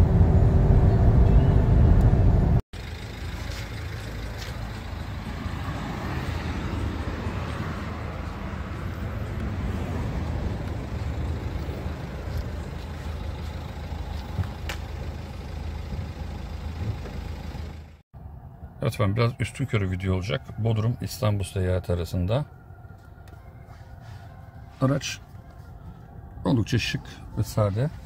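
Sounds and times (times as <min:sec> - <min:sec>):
vehicle hum: 0:00.0 - 0:20.4.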